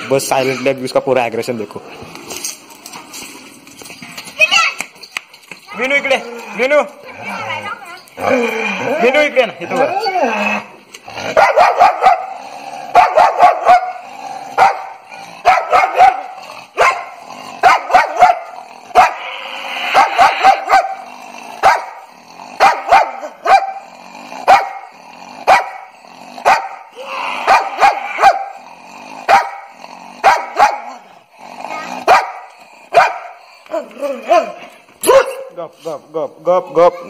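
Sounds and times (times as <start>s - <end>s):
dog snarling growls: 6.0s - 34.8s
dog barking aggressively: 11.2s - 19.3s, 19.9s - 35.5s.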